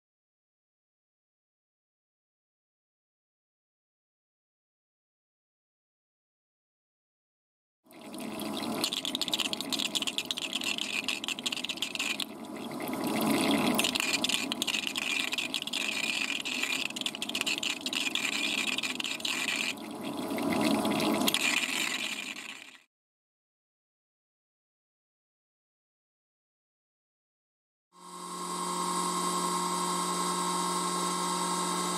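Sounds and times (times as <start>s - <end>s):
bubbling flushing liquid: 7.9s - 22.9s.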